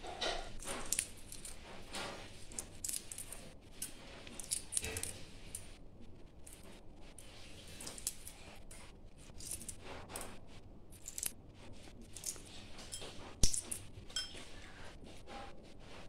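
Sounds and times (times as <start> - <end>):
eggshell crackling while peeled: 0.2 - 5.8, 6.4 - 12.6, 13.4 - 13.9.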